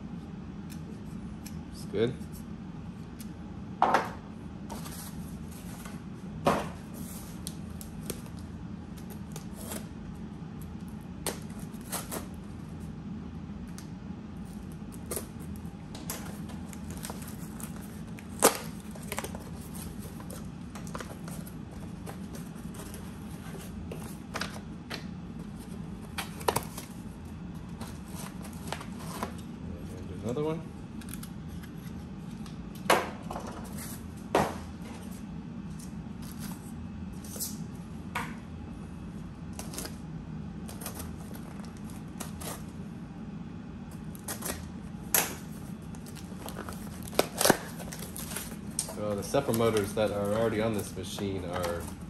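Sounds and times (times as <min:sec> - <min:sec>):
steady low hum: 0:00.0 - 0:52.0
cardboard packaging handled: 0:14.5 - 0:29.4, 0:45.4 - 0:52.0.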